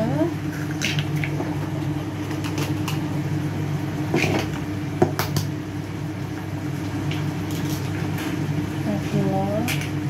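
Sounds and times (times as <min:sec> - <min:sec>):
kitchen appliance hum: 0:00.0 - 0:10.0.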